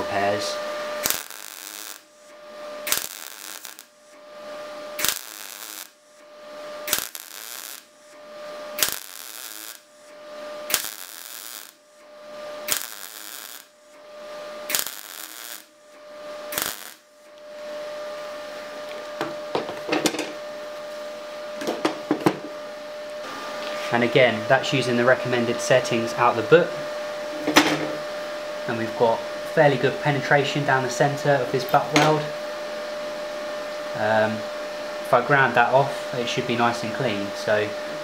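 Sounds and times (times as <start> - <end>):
welder arc crackling: 0.0 - 19.0
steady hum: 0.0 - 38.0.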